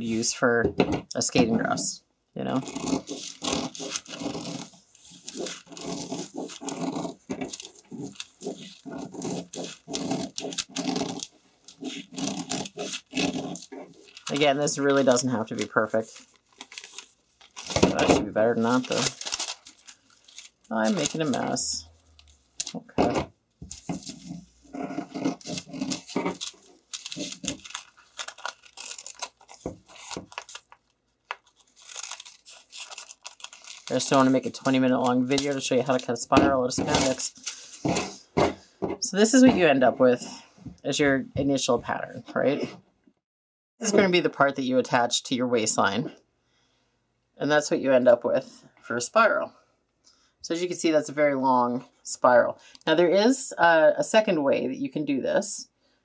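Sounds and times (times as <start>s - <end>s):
scissors cutting paper and fabric: 2.5s - 15.8s, 23.8s - 30.7s.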